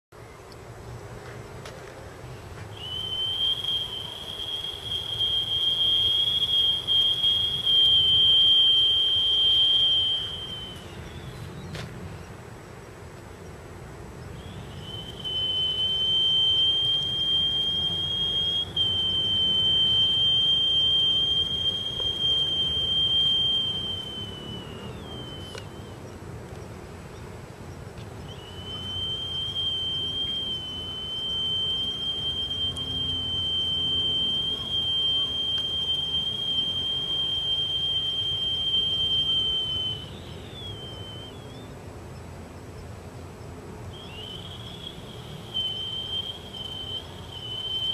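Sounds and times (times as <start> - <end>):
stone flute long high notes: 2.7 - 11.7, 14.4 - 26.0, 28.3 - 41.7, 43.9 - 47.9.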